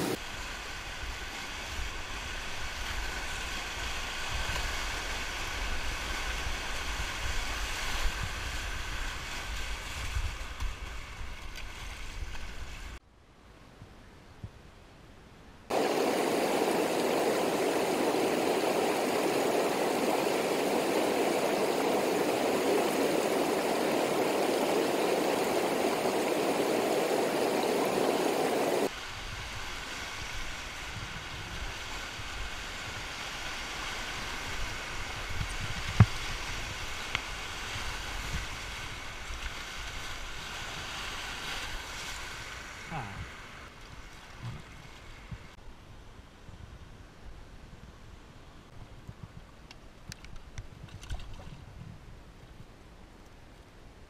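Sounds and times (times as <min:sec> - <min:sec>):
river rapids rushing: 0:15.7 - 0:30.9.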